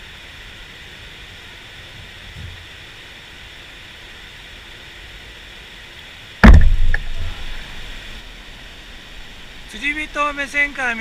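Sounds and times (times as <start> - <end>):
mountain stream rushing: 0.0 - 11.0
loud heavy thump: 6.4 - 7.6.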